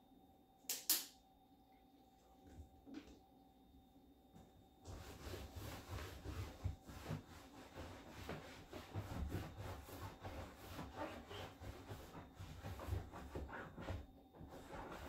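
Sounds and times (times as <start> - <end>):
cloth rubbing on leather sofa: 4.8 - 15.0.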